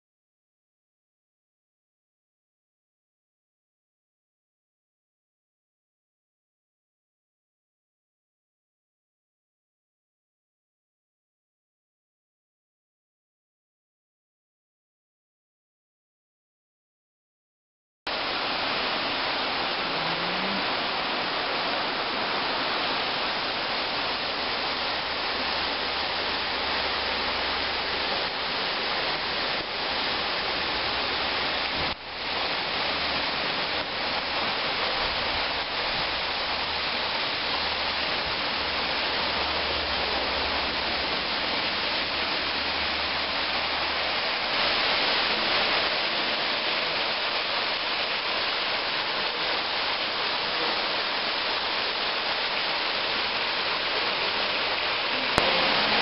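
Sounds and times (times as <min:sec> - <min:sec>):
fountain water splashing: 0:18.1 - 0:56.0.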